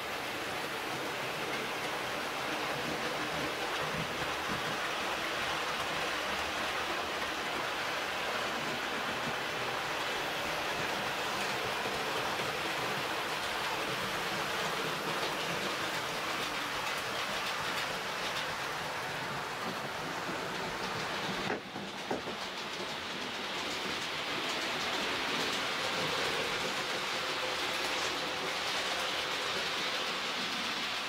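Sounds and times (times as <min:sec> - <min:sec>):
model trains rolling on track: 0:00.0 - 0:31.0.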